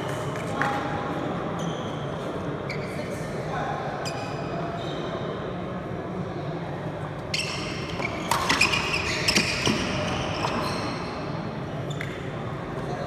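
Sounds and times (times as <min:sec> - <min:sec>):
low murmur of hall: 0:00.0 - 0:13.0
shoe squeaks: 0:01.6 - 0:03.2, 0:04.0 - 0:05.2, 0:07.3 - 0:12.3.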